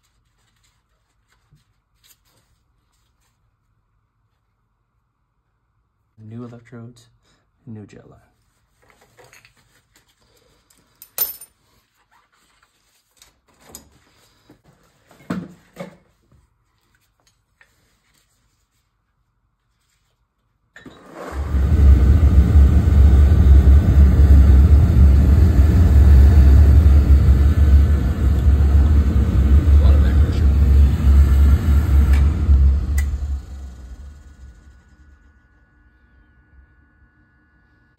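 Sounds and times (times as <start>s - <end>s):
oil burner rumbling: 21.2s - 35.7s.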